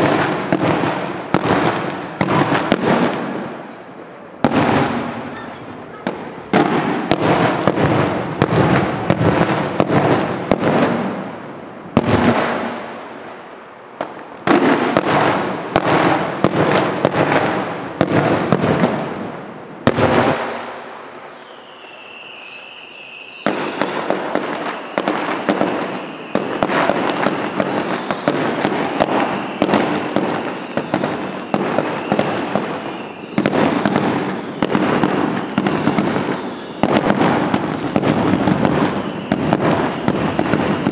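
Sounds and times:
fireworks bangs and crackle: 0:00.0 - 0:40.9
steady high whistle: 0:21.2 - 0:38.0, 0:38.8 - 0:40.9.

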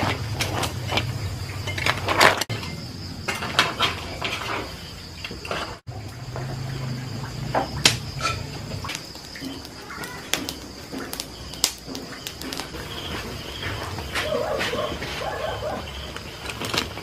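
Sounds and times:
wood fire crackling: 0:00.0 - 0:17.0
sharp pops from firewood: 0:07.5 - 0:12.8.

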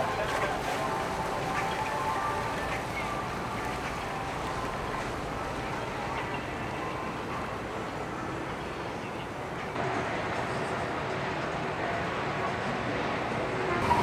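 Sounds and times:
boat engines running: 0:00.0 - 0:14.0.

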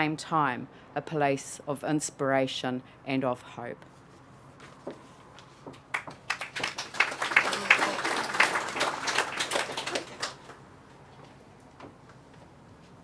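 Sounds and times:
audience applauding: 0:05.9 - 0:10.6.

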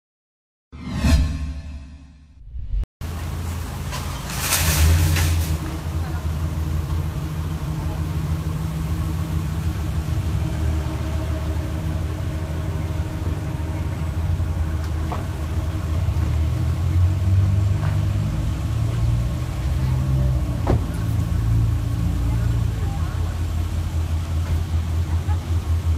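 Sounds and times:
car engine idling: 0:05.6 - 0:17.0, 0:19.6 - 0:25.9.

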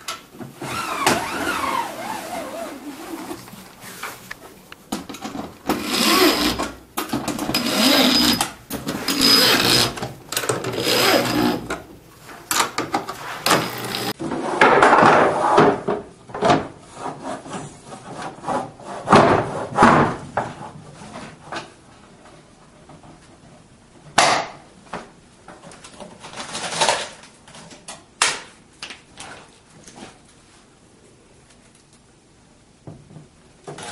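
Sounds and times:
power drill whining: 0:05.7 - 0:06.7, 0:07.5 - 0:08.5, 0:09.1 - 0:10.0, 0:10.7 - 0:11.7, 0:13.5 - 0:14.1.

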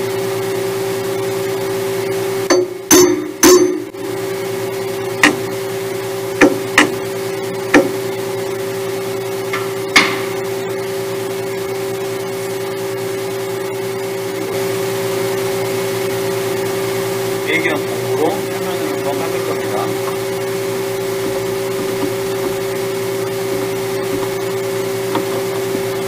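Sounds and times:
metal clanks and clinks: 0:02.5 - 0:03.9
lathe humming: 0:02.5 - 0:11.8, 0:13.4 - 0:26.0.

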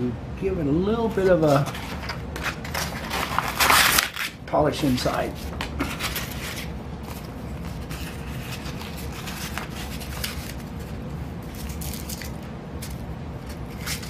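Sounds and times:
sandpaper rustling and crinkling: 0:01.1 - 0:14.0.

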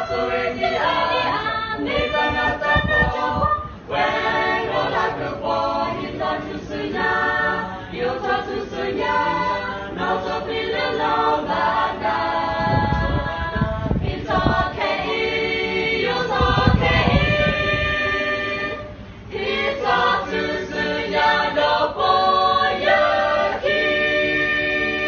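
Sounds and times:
group singing a cappella: 0:00.0 - 0:25.0.

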